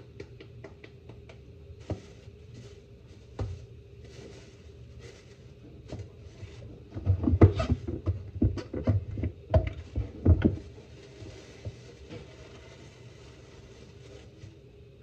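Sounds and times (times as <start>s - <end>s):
knocks and thumps: 6.8s - 10.8s.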